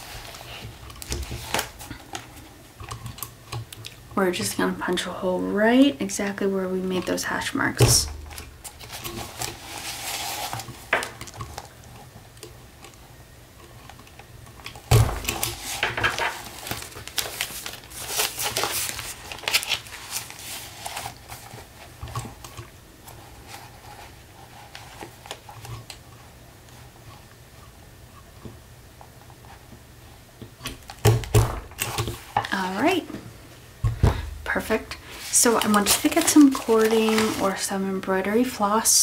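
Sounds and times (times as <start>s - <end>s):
paper rustling and crinkling: 0.0s - 3.3s, 8.2s - 12.1s, 14.1s - 26.0s, 34.5s - 38.1s.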